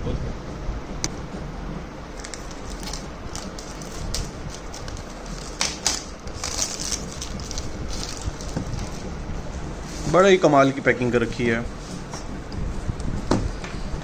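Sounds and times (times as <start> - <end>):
steady low hum: 0.0 - 14.0
tape crinkling: 2.1 - 9.1
plastic tape peeling off box: 2.2 - 8.9.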